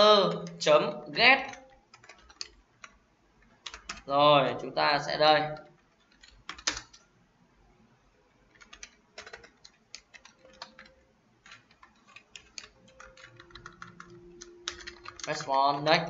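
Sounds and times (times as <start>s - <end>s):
keyboard typing clicks: 0.2s - 0.7s, 1.4s - 4.1s, 5.5s - 7.0s, 8.5s - 16.0s.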